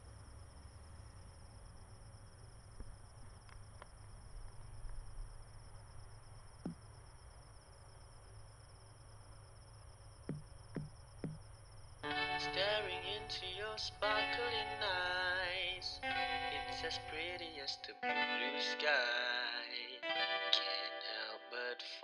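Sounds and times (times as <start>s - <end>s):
crickets chirring: 0.0s - 20.0s
faint taps and knocks: 6.6s - 6.9s, 10.3s - 11.5s.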